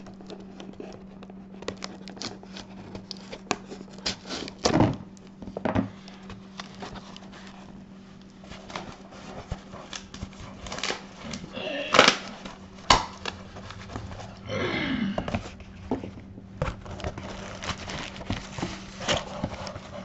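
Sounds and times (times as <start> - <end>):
faint hum: 0.0 - 20.0
knife slitting packing tape: 1.7 - 4.7
cardboard box crackling: 6.2 - 14.4, 15.2 - 20.0.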